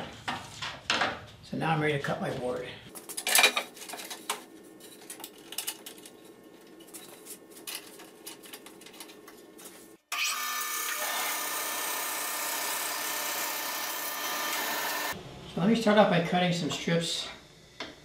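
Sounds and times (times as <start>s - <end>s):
band saw cutting wood: 10.1s - 15.2s.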